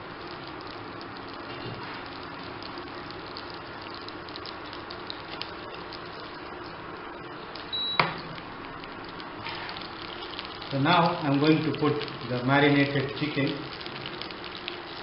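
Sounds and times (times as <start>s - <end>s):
oil crackling in frying pan: 0.0s - 15.0s
high beep: 7.7s - 8.2s.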